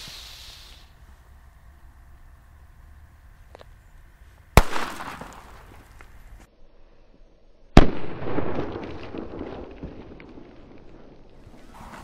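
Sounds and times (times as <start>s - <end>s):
firecracker bangs: 4.6s - 5.9s.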